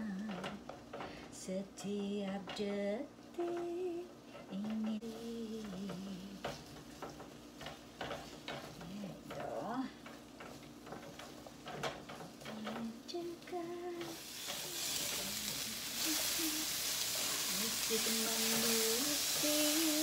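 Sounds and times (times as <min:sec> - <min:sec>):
spatula scraping potatoes in pan: 0:03.4 - 0:20.0
potatoes sizzling in oil: 0:04.9 - 0:20.0.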